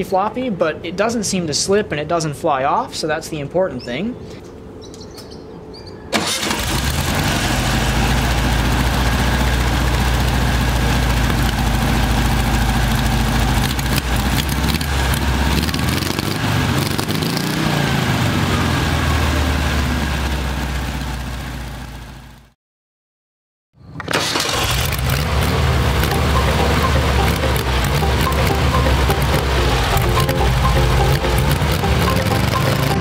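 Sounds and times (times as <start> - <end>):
car engine idling: 6.7 - 15.5, 24.5 - 33.0.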